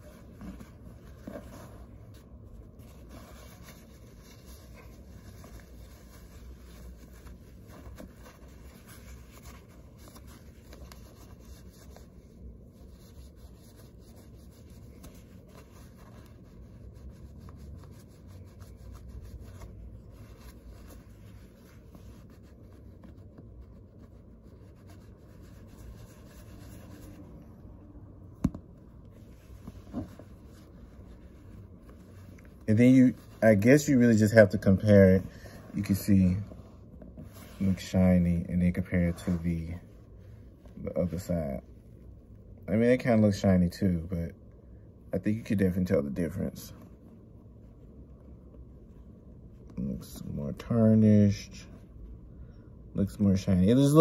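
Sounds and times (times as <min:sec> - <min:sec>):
paper towel rubbing metal: 0:00.0 - 0:27.8, 0:28.9 - 0:42.3.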